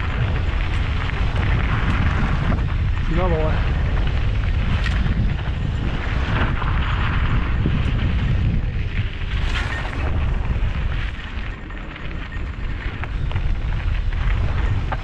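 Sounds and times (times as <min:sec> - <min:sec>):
bike rattling: 0:00.0 - 0:15.0
wind buffeting microphone: 0:00.0 - 0:15.0.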